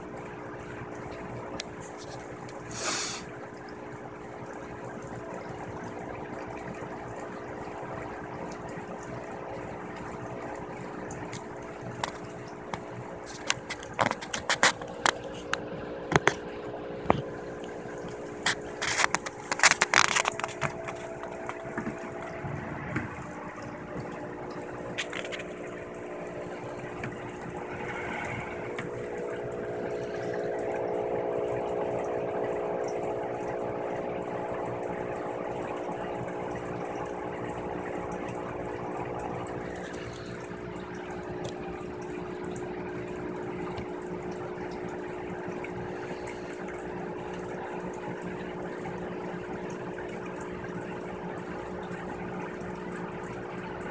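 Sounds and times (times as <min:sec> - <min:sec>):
machine hum with hiss: 0:01.8 - 0:03.4, 0:25.7 - 0:36.8.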